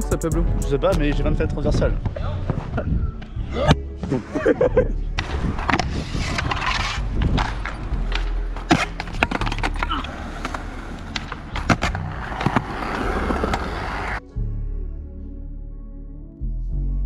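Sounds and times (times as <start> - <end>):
soft music: 0.0 - 17.0
skateboard clacks: 5.2 - 14.2
skateboard wheels rolling on concrete: 5.2 - 14.2.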